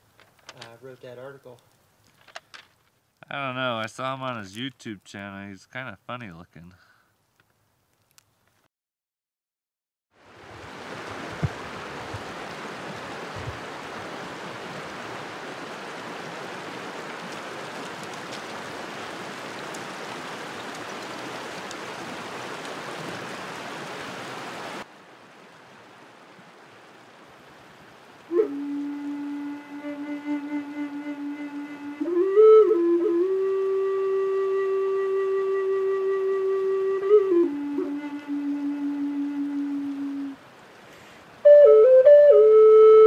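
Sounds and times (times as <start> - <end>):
running water rushing: 10.2 - 43.0.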